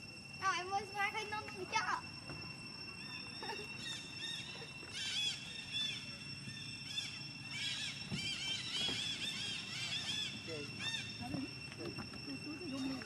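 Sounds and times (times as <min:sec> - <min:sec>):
steady high-pitched drone: 0:00.0 - 0:13.0
high-pitched animal chirps: 0:02.9 - 0:11.6.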